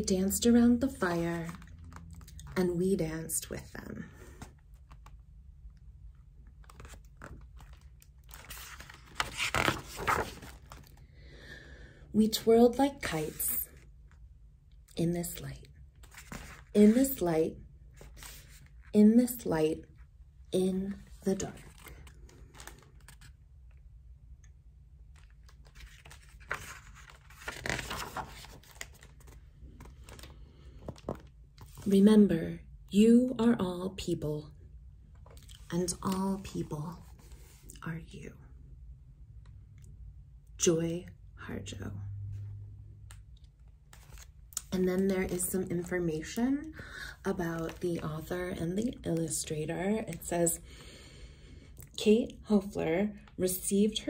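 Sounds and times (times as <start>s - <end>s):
book page rustling: 1.0s - 2.8s, 3.6s - 5.3s, 6.4s - 11.0s, 16.0s - 17.1s, 18.0s - 18.9s, 20.9s - 23.4s, 25.0s - 32.0s, 35.2s - 37.8s, 43.1s - 46.3s, 47.4s - 50.3s.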